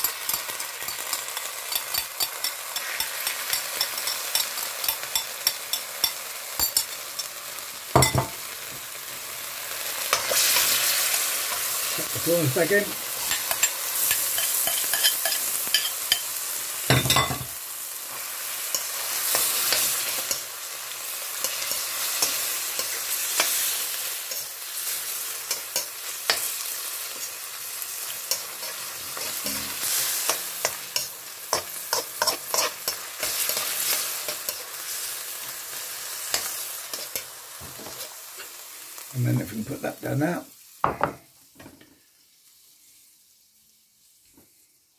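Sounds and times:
prawns sizzling in a wok: 0:00.0 - 0:44.9
spatula scraping a pan: 0:00.1 - 0:06.2, 0:10.0 - 0:12.0, 0:13.1 - 0:16.4, 0:21.3 - 0:38.6.

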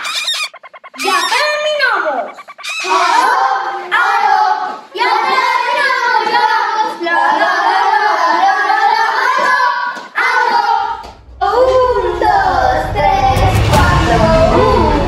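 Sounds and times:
children singing: 0:02.7 - 0:15.0.

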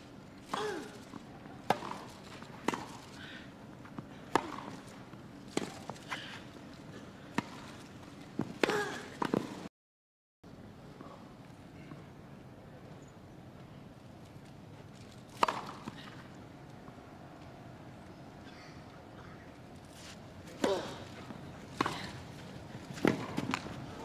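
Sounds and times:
tennis ball struck by rackets: 0:01.6 - 0:03.1, 0:04.3 - 0:04.9, 0:15.3 - 0:16.2, 0:20.6 - 0:23.9.

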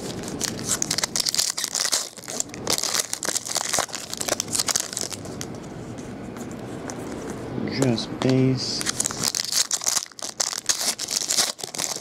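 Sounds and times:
foil wrapper tearing and crinkling: 0:00.0 - 0:05.5, 0:08.8 - 0:12.0.

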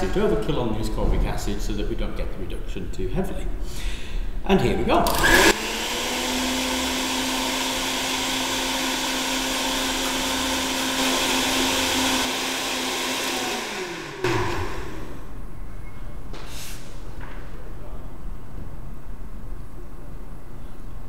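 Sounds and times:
blender motor whining: 0:05.1 - 0:15.3.

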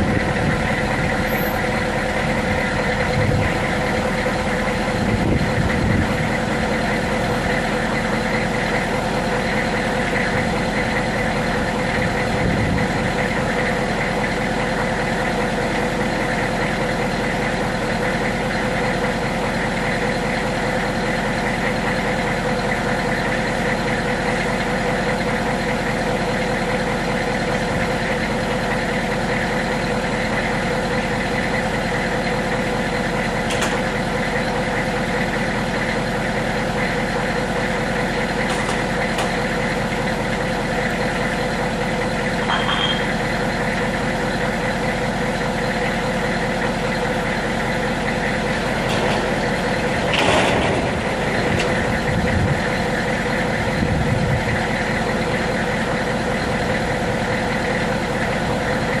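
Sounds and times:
diesel engine idling: 0:00.0 - 0:59.0
roll-up door clattering shut: 0:50.0 - 0:51.8.

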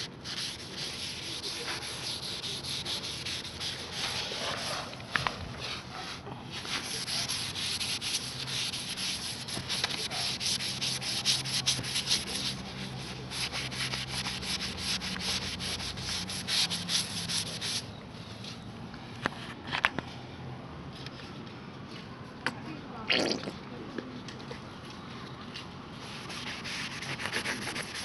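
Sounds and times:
scouring pad scrubbing metal: 0:06.6 - 0:17.6.

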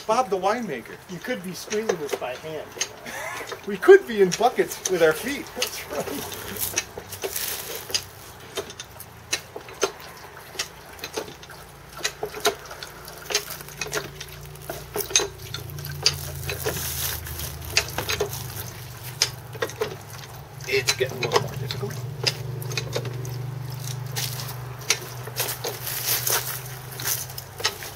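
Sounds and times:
wine trickling into bucket: 0:00.0 - 0:27.9.

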